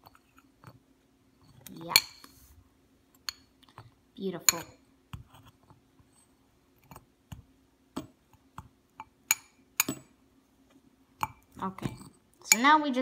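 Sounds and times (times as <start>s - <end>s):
metal spoon clinking on ceramic bowl: 1.5s - 2.3s, 3.2s - 3.5s, 4.4s - 4.8s, 9.3s - 10.1s, 11.2s - 12.8s.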